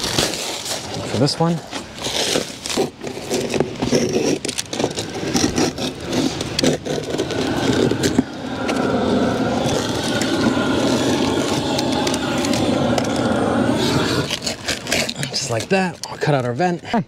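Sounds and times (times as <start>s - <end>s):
engine-like drone: 4.5s - 15.7s.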